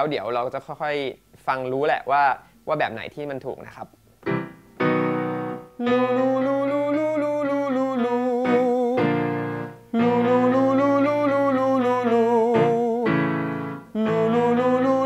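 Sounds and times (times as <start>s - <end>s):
held keyboard chords: 4.2s - 15.0s
man singing vocal warm-up: 5.8s - 15.0s.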